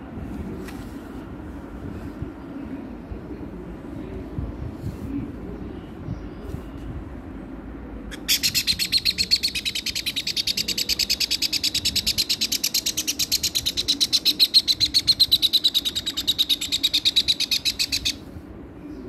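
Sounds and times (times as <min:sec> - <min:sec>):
parrot chick chirping: 0:08.1 - 0:18.2.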